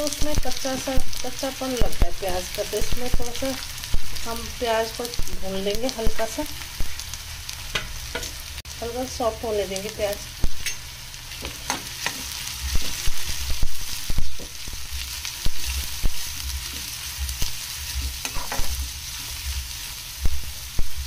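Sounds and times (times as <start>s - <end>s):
onions sizzling in oil: 0.0s - 21.0s
metal spatula scraping a pan: 14.2s - 20.0s.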